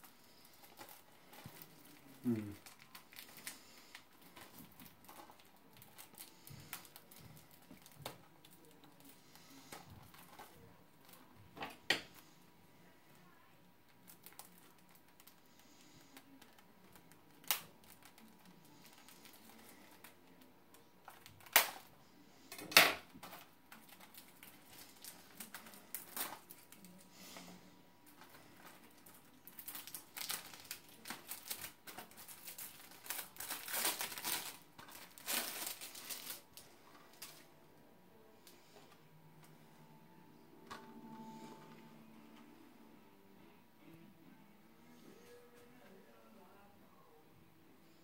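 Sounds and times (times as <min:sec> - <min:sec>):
plastic wrap crinkling: 0:00.0 - 0:12.2, 0:13.9 - 0:21.9, 0:23.0 - 0:37.5.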